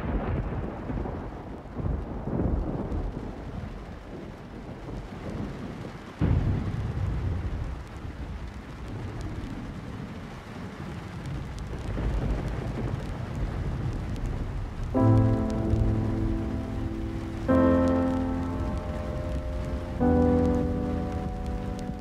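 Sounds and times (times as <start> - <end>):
thunder rumbling: 0.0 - 22.0
rain hissing: 0.1 - 22.0
sustained keyboard chord: 15.0 - 22.0.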